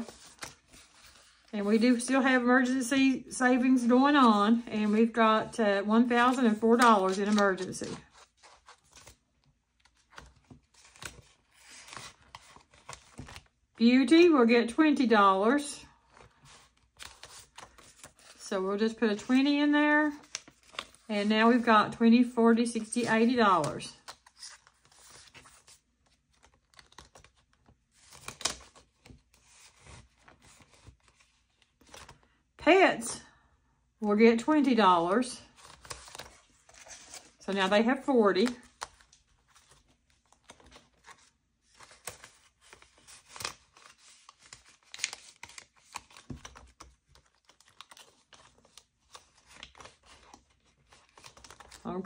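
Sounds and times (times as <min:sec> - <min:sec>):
paper bills rustling: 0:00.0 - 0:02.1, 0:06.0 - 0:09.2, 0:35.4 - 0:52.0
banknotes rustling: 0:00.0 - 0:13.6, 0:14.2 - 0:32.4, 0:34.4 - 0:52.0.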